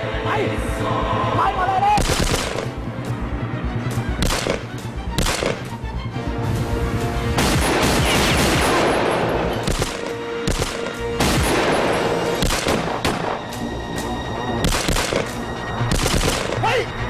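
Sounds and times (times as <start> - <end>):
action music: 0.0 - 17.0
rapid gunfire: 2.0 - 2.7, 4.2 - 5.7, 7.4 - 9.0, 9.6 - 11.8, 12.4 - 13.2, 14.6 - 16.6
gunshots: 2.0 - 2.8, 4.2 - 5.7, 7.4 - 13.5, 14.6 - 16.7.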